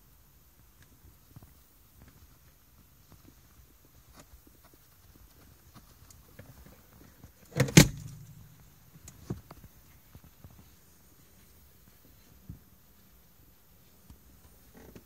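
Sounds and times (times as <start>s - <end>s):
animal bumping against car: 7.5s - 9.4s.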